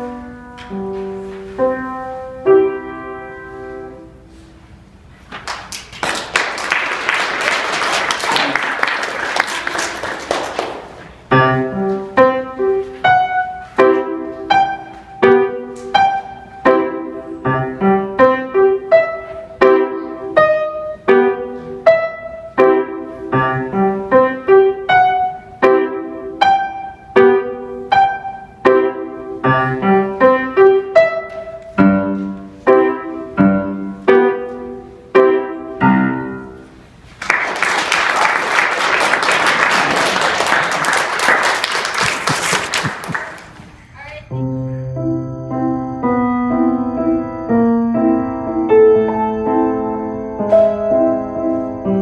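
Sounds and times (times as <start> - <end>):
grand piano playing: 0.0 - 4.3, 10.7 - 37.0, 44.3 - 52.0
audience applause: 5.4 - 11.0, 37.2 - 43.6.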